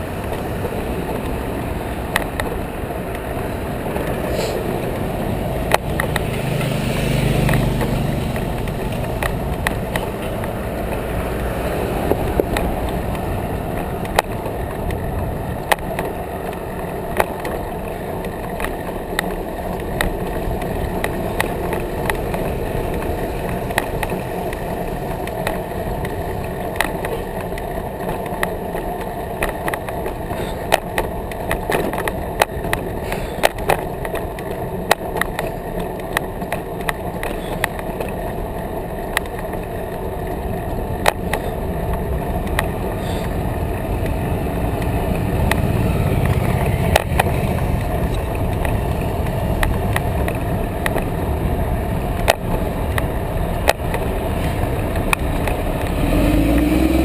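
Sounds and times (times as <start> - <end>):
bicycle clicks and rattles: 0.0 - 57.0
bicycle tyres rumbling on pavement: 0.0 - 57.0
traffic passing: 0.0 - 57.0.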